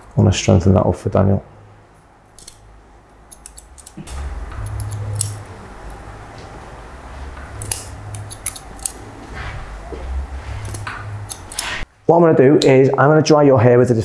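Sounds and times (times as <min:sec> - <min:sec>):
low hum: 0:01.5 - 0:12.1
scissors snipping hair: 0:03.3 - 0:06.0, 0:07.4 - 0:09.0, 0:10.6 - 0:11.8.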